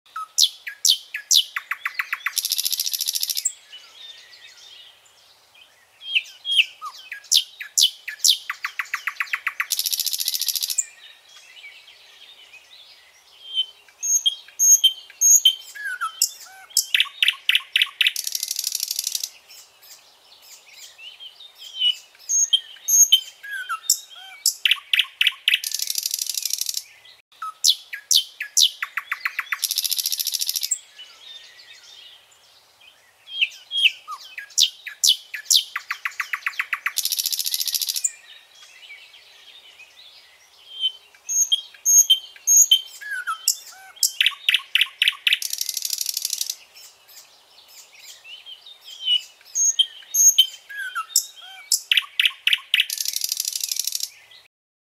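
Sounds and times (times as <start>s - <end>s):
nightingale singing: 0.1s - 54.5s.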